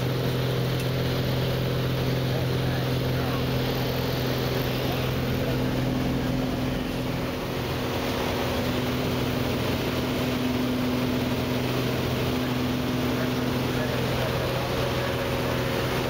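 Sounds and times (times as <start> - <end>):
airplane engine droning in cabin: 0.0 - 16.0.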